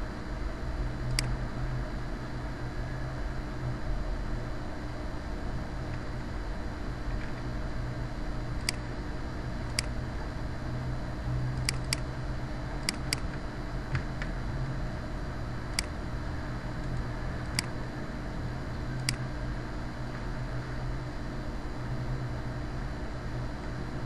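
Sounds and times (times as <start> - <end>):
background hum and hiss: 0.0 - 24.0
computer mouse clicking: 1.1 - 1.4, 8.6 - 8.9, 9.7 - 9.9, 11.6 - 12.1, 12.8 - 13.4, 16.8 - 17.8, 19.0 - 19.2.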